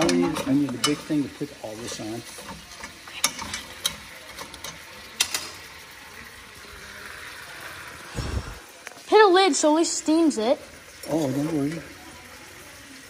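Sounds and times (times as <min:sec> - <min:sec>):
tongs and shells clicking on metal pot: 0:00.0 - 0:01.2, 0:02.2 - 0:05.7.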